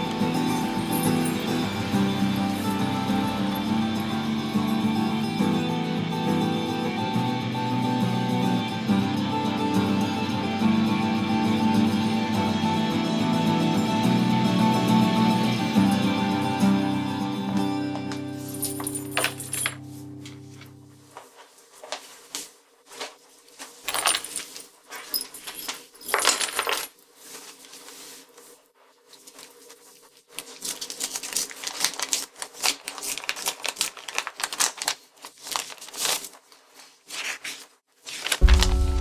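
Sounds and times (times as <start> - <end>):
keys clinking on counter: 0.4 - 1.8, 18.2 - 19.9, 23.8 - 27.0
paper envelope rustling: 18.1 - 39.0.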